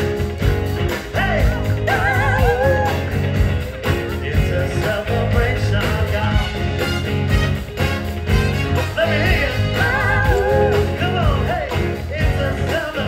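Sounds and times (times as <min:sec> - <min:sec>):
rock band playing: 0:00.0 - 0:13.0
person singing: 0:01.0 - 0:06.7, 0:08.8 - 0:13.0.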